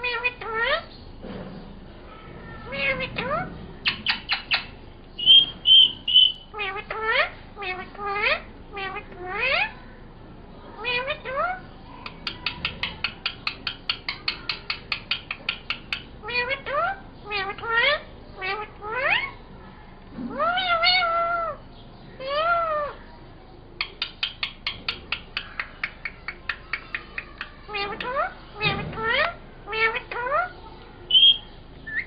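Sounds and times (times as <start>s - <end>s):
parakeet imitating cat meow: 2.4s - 3.4s, 20.3s - 21.6s
parakeet clicking chatter: 2.7s - 9.7s, 10.8s - 19.4s, 23.8s - 32.0s.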